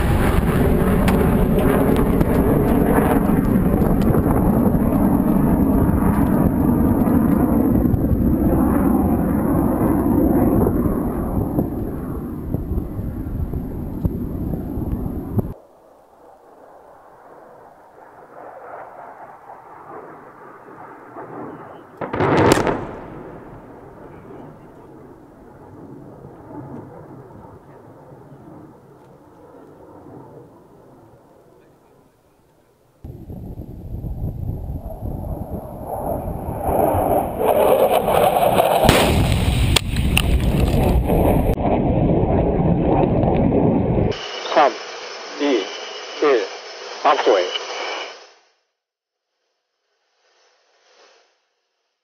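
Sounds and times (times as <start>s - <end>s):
continuous rumble: 0.0s - 15.6s
distant bomb explosion: 0.0s - 15.6s, 22.0s - 26.3s, 37.5s - 44.1s
low rumble: 0.0s - 15.6s, 22.0s - 27.6s, 33.1s - 44.2s
cracks: 37.9s - 41.4s
rushing noise: 44.0s - 48.5s.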